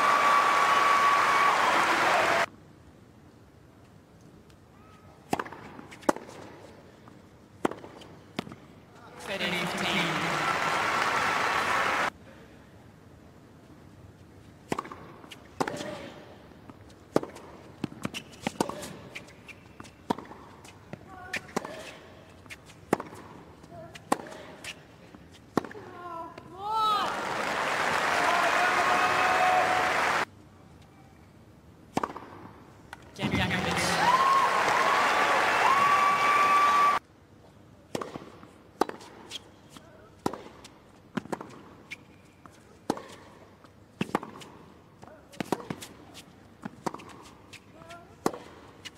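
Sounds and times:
tennis racket hitting ball: 0:05.3 - 0:06.4, 0:20.0 - 0:24.8, 0:31.9 - 0:32.6, 0:37.9 - 0:39.3, 0:40.2 - 0:41.7, 0:44.0 - 0:44.6, 0:45.3 - 0:48.9
shoes squeaking on court: 0:17.3 - 0:23.2, 0:41.2 - 0:44.4.

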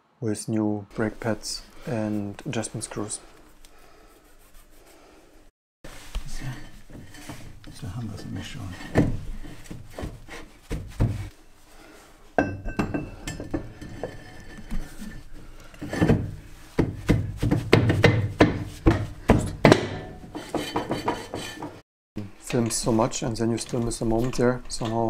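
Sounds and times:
metal clunks and clinks: 0:12.4 - 0:14.9.

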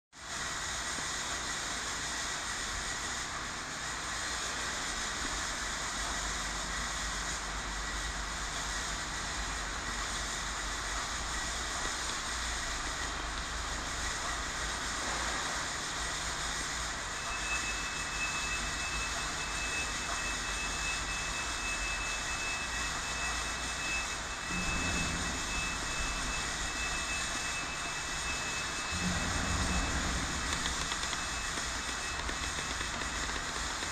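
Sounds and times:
machine-like hiss: 0:00.2 - 0:33.9
faint high whine: 0:04.0 - 0:33.9
higher whine: 0:17.0 - 0:33.9.

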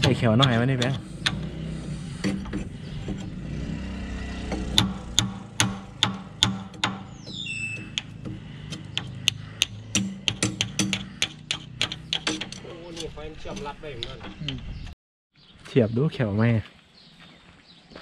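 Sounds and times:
hammer striking metal: 0:00.0 - 0:01.6, 0:04.4 - 0:14.6.

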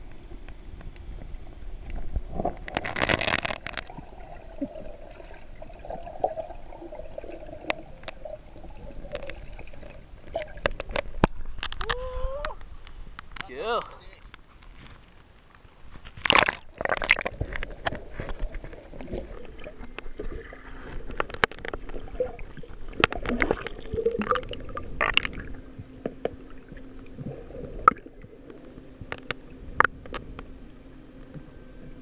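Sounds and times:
sharp clicks underwater: 0:00.0 - 0:04.1, 0:07.6 - 0:08.3, 0:08.9 - 0:30.5
faint steady hum: 0:00.0 - 0:32.0
gurgling bubbles underwater: 0:01.2 - 0:11.6, 0:16.3 - 0:30.4.

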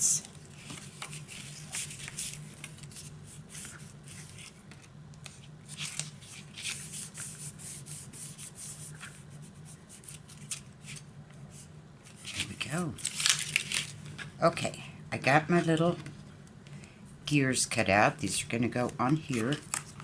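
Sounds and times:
low steady hum: 0:00.0 - 0:20.0
paper rustling and rubbing: 0:00.3 - 0:14.3, 0:19.1 - 0:20.0.

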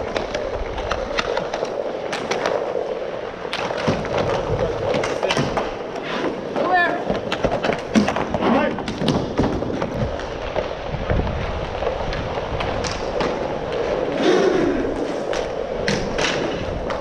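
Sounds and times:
hockey sticks and puck clacking: 0:00.0 - 0:10.7, 0:11.5 - 0:17.0
skate wheels rolling on plastic tiles: 0:00.0 - 0:17.0.

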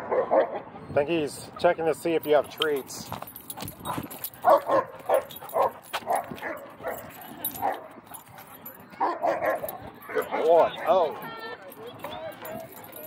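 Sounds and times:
dogs barking: 0:00.0 - 0:00.8, 0:03.7 - 0:11.2.

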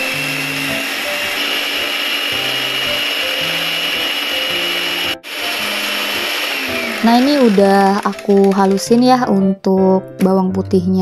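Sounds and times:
mini blender motor whining: 0:00.0 - 0:08.8.

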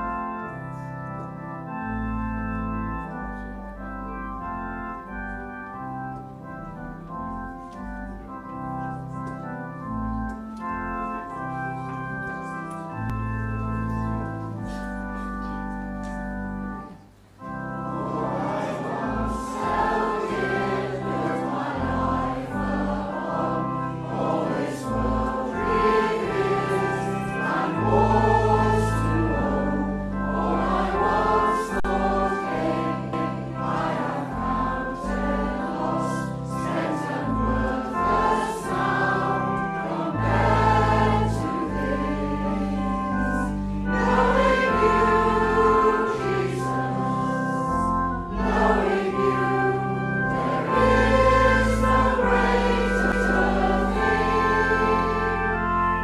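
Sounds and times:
organ chord: 0:00.0 - 0:56.0
choir singing: 0:17.8 - 0:56.0.

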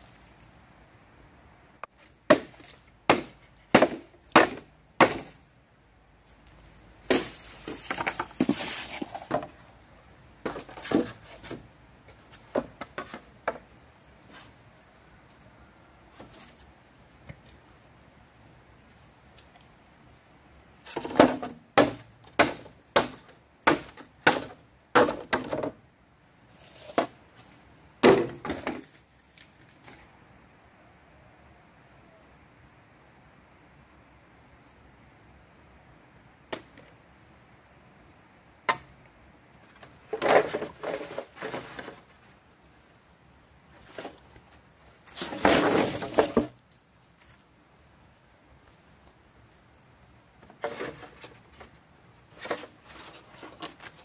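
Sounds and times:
crickets droning: 0:00.0 - 0:54.0
bamboo being chopped: 0:01.8 - 0:05.4, 0:07.1 - 0:09.5, 0:20.9 - 0:25.7, 0:28.0 - 0:28.8, 0:38.7 - 0:38.9.

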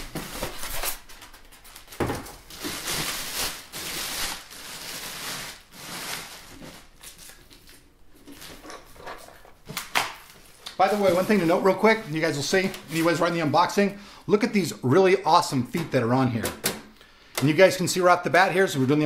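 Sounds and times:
plastic bag crinkling: 0:00.0 - 0:08.6, 0:10.1 - 0:13.8.

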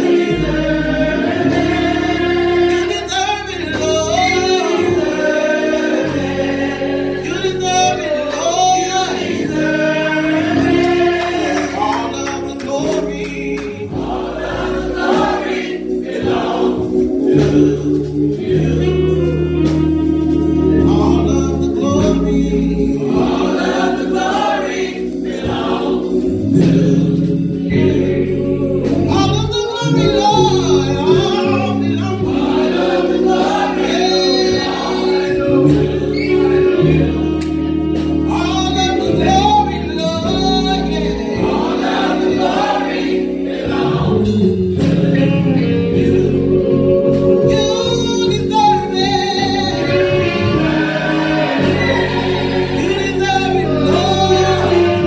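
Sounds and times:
gospel choir singing: 0:00.0 - 0:55.0
instrumental bass line: 0:00.0 - 0:55.0.

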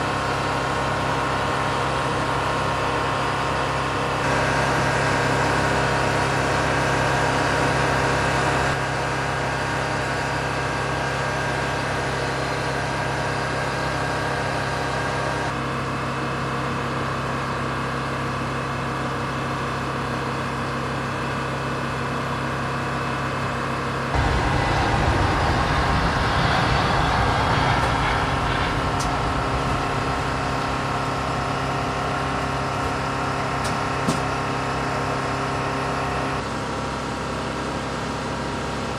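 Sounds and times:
military aircraft engines running: 0:00.0 - 0:38.9.

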